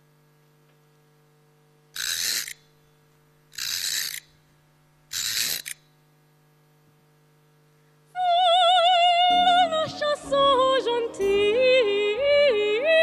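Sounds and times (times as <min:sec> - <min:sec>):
faint steady hum: 0:00.0 - 0:13.0
clockwork key winding ratchet: 0:02.0 - 0:02.7, 0:03.5 - 0:04.4, 0:05.1 - 0:05.8.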